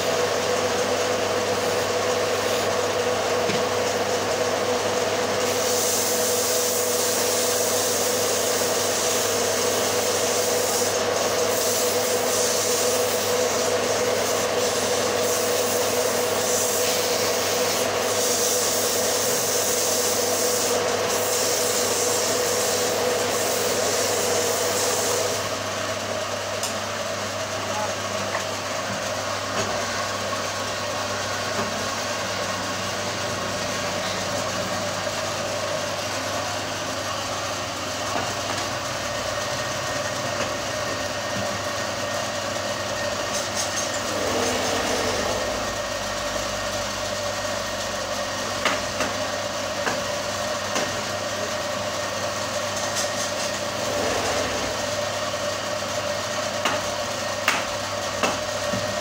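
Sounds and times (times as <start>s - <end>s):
wood lathe motor humming: 30.1s - 52.8s, 53.5s - 59.0s.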